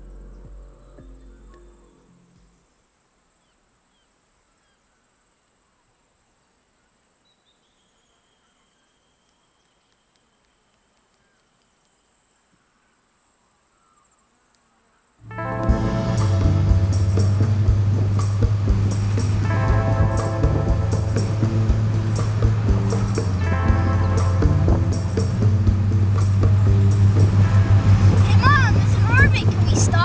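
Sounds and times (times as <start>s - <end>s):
music: 0.0s - 2.6s, 15.2s - 30.0s
faint chirps: 0.0s - 15.2s.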